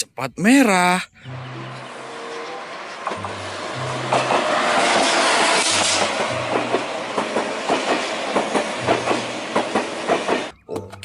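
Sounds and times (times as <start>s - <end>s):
train passing with rushing air: 1.2s - 10.6s
wheels clicking over rail joints: 4.0s - 11.0s.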